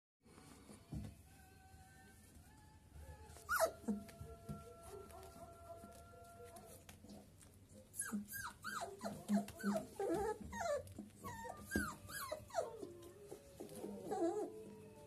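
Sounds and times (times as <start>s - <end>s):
puppies whimpering and squealing: 3.3s - 4.2s, 7.9s - 15.0s.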